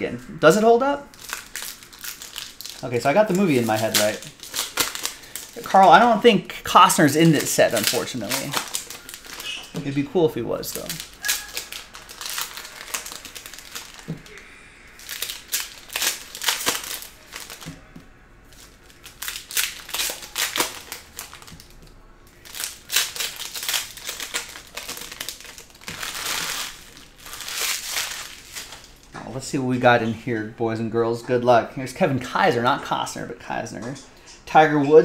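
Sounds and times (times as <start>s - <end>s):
foil wrapper crinkling: 1.1s - 17.9s, 18.5s - 29.1s.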